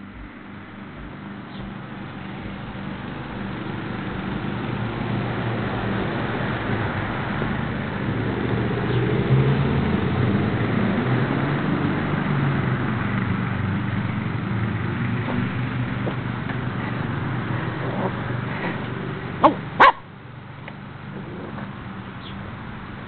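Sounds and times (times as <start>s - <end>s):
steady low hum: 0.0s - 8.4s, 11.6s - 23.0s
dog barking: 19.4s - 20.0s.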